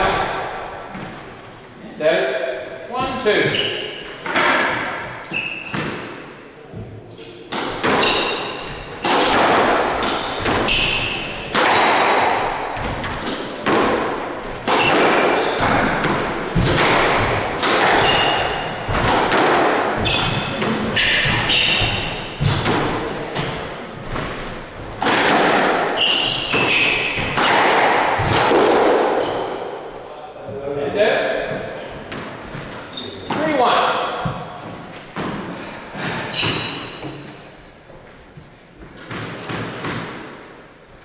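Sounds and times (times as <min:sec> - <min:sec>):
rackets hitting squash ball: 0:00.0 - 0:01.6, 0:02.3 - 0:40.8
shoes squeaking on wooden floor: 0:03.2 - 0:04.4, 0:05.2 - 0:06.0, 0:06.7 - 0:09.2, 0:10.0 - 0:11.5, 0:14.4 - 0:25.0, 0:25.9 - 0:27.4, 0:29.1 - 0:29.6, 0:31.4 - 0:33.6, 0:34.2 - 0:39.5
ball smacking off walls: 0:07.5 - 0:29.2.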